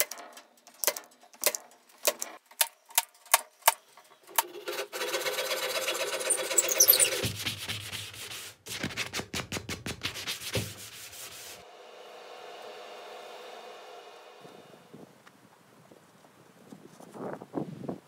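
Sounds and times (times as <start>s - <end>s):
saw cutting wood: 4.3s - 7.4s, 10.6s - 15.0s
rubbing strokes on wood: 4.5s - 11.7s
faint steady hiss: 10.6s - 17.4s.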